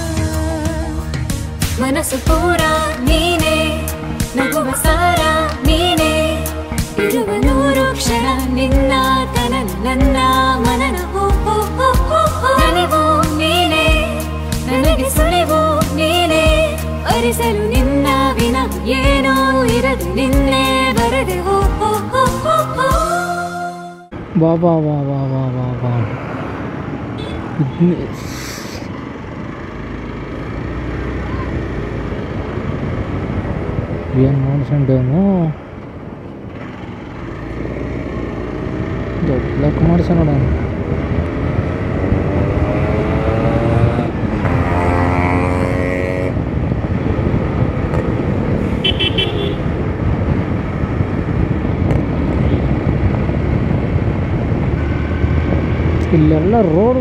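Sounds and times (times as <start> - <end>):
wind and road noise: 0.0 - 57.0
high-pitched horn beep: 27.2 - 27.6, 48.7 - 49.7
short hiss: 28.2 - 28.9
wind noise on microphone: 32.3 - 34.8, 40.4 - 57.0
motorcycle engine running: 35.9 - 57.0.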